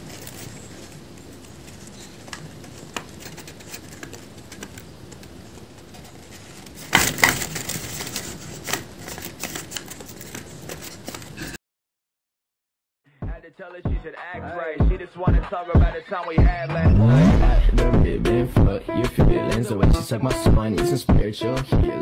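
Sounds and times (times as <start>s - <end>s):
paper clicking and crackling: 0.0s - 11.5s
paper rustling: 0.0s - 11.5s.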